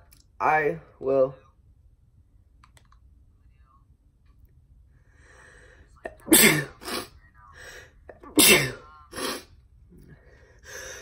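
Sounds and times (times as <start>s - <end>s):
boy sneezing: 6.2s - 7.1s, 8.2s - 9.5s.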